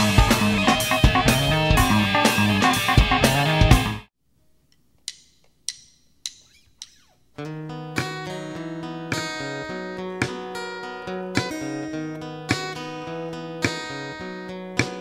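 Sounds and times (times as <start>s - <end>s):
light drums: 0.0s - 4.0s
drumstick count-in clicks: 4.7s - 7.1s
acoustic guitar strumming: 7.4s - 15.0s.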